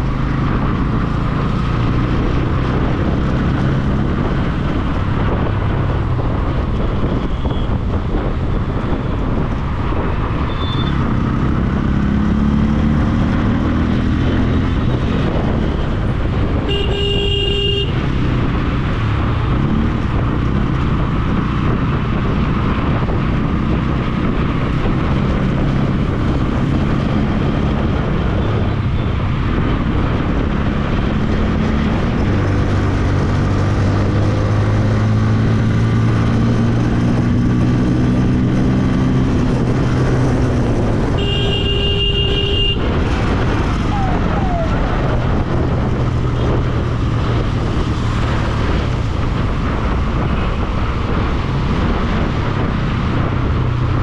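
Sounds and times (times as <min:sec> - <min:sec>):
road and wind noise: 0:00.0 - 0:54.0
vehicle horn honking: 0:16.7 - 0:18.0, 0:41.1 - 0:42.9.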